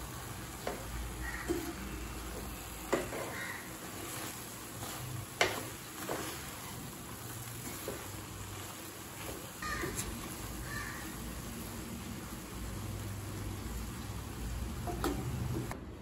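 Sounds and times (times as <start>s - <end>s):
spatula knocking on pan: 0.6s - 3.7s, 5.4s - 6.3s
spatula scraping rice in pan: 0.7s - 10.8s.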